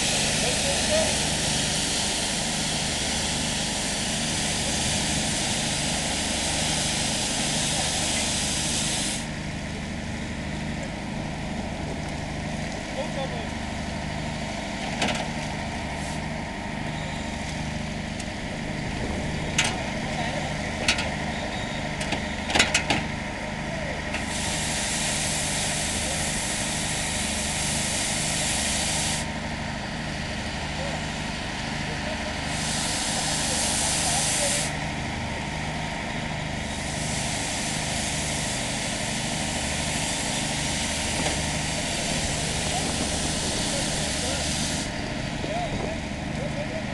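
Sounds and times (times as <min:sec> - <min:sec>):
hose spray and steam hissing: 0:00.0 - 0:09.4, 0:24.2 - 0:29.4, 0:32.4 - 0:34.8, 0:36.6 - 0:45.0
fire engine motor droning: 0:00.0 - 0:46.9.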